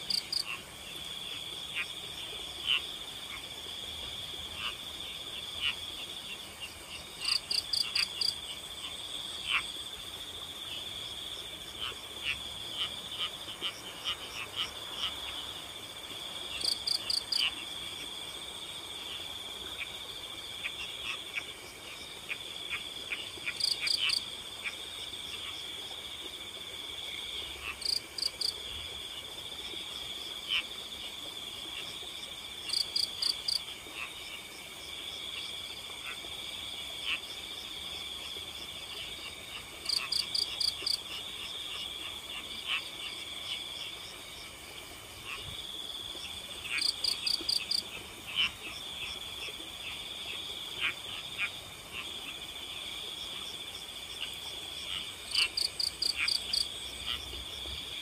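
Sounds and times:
crickets trilling: 0.0 - 58.0
frog call pulses: 4.5 - 9.8, 20.6 - 25.7, 38.2 - 44.0, 46.2 - 52.5, 53.3 - 58.0.

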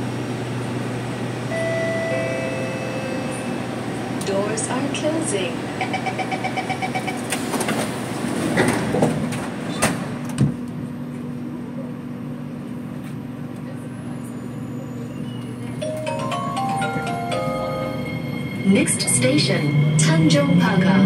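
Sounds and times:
traction inverter whine: 0.0 - 7.8
train low hum: 0.0 - 21.0.

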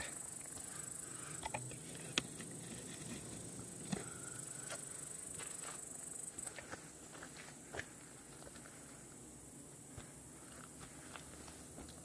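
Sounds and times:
crickets chirring: 0.0 - 12.0.

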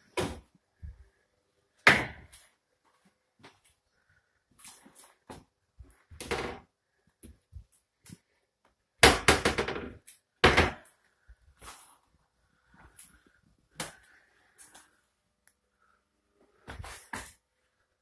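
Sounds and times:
cabinet doors and drawers knocking: 9.0 - 10.8.

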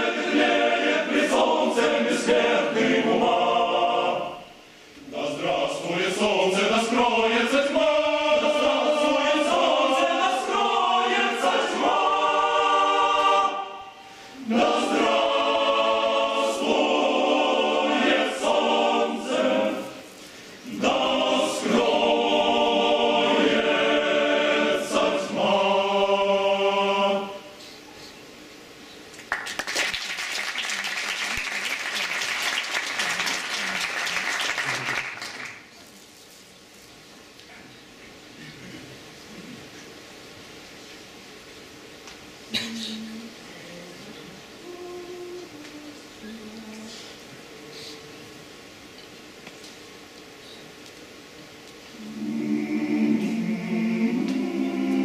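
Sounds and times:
male choir singing a cappella: 0.0 - 27.6, 52.0 - 55.0
audience applauding: 29.2 - 35.7.

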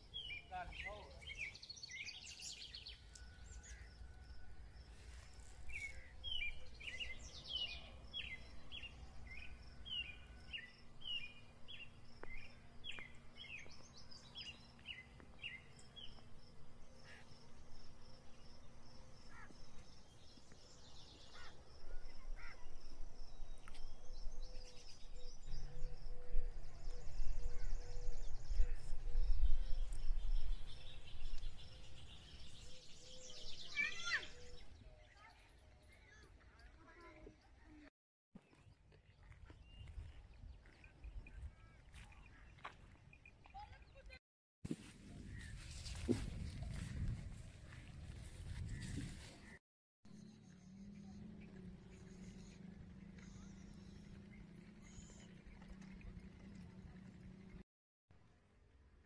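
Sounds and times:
bird chirping: 0.0 - 37.5
outdoor background noise: 0.0 - 59.0.

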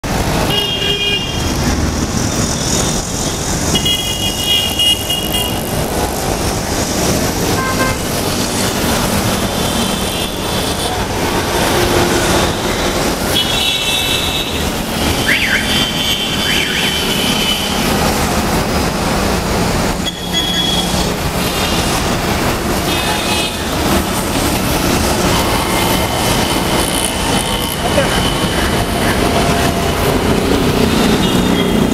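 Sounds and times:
road traffic passing: 0.0 - 31.9
vehicle horn honks: 3.7 - 5.6, 7.6 - 8.0.

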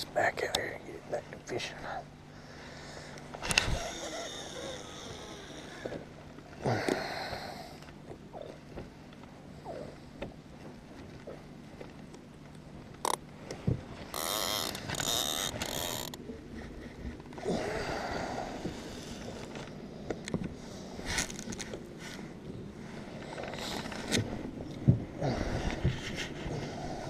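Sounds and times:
fishing reel whirring hiss: 3.4 - 5.9, 14.1 - 16.2
fishing reel clicks and knocks: 14.1 - 16.2.

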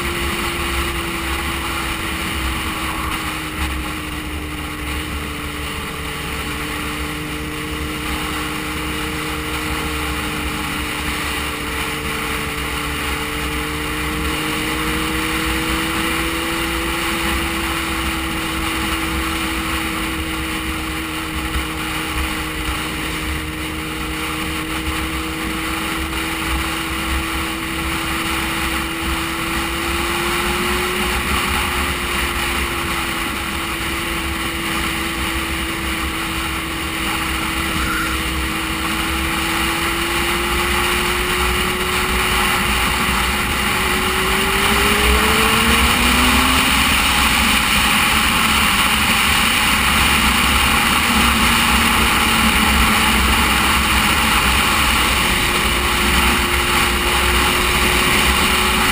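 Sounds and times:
motorcycle engine running: 0.0 - 58.9
wind rush: 35.0 - 58.9.

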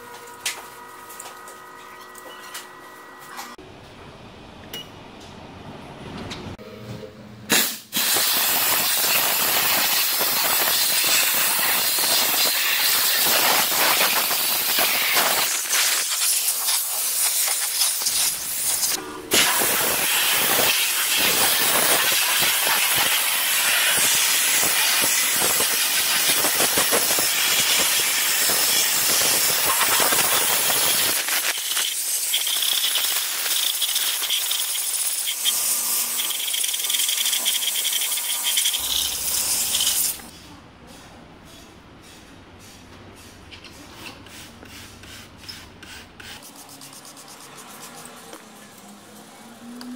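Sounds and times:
steam cleaner hissing: 7.5 - 40.3.

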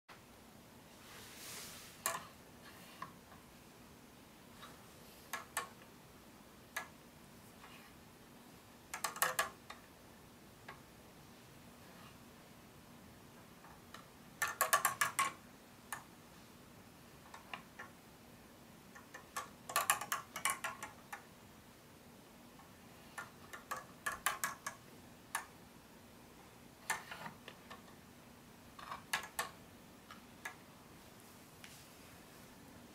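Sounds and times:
plastic gears clicking: 8.9 - 9.8, 13.9 - 16.1, 18.9 - 21.2, 23.1 - 25.5, 26.8 - 27.9, 28.8 - 29.6.

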